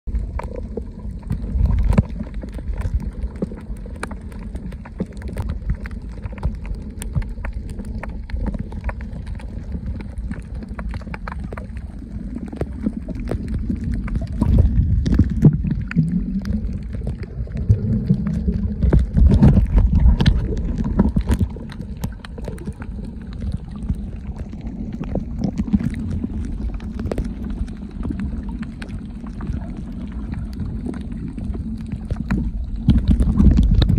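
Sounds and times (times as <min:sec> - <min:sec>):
underwater rumble of moving water: 0:00.0 - 0:33.9
crackling clicks: 0:00.1 - 0:33.9.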